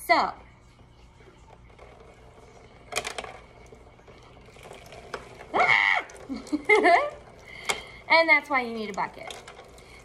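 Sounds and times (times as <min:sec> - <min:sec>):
wooden skewers clattering in tub: 0:04.2 - 0:09.9.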